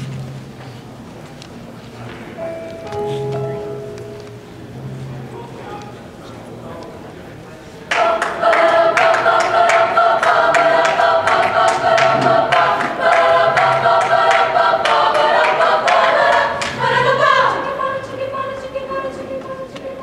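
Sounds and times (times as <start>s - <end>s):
women's choir singing a cappella: 7.9s - 20.0s.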